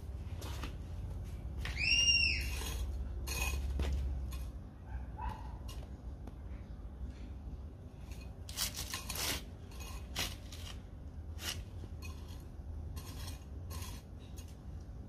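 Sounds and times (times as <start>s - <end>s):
hand hoe scraping soil: 2.3s - 4.5s, 8.1s - 14.6s.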